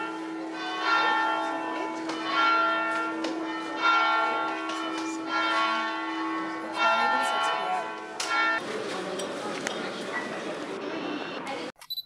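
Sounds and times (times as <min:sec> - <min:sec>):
church bells ringing: 0:00.0 - 0:08.8.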